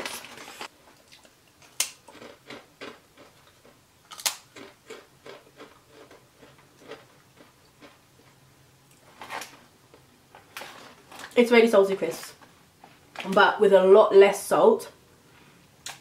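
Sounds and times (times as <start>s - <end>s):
crisps being crunched: 0.0s - 8.0s.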